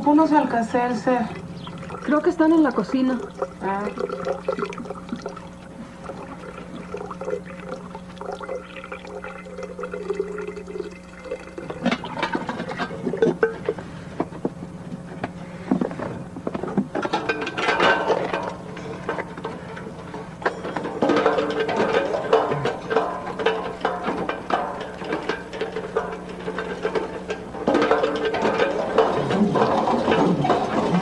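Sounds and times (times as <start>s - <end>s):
steady hum: 0.0s - 31.0s
running water: 1.0s - 13.3s.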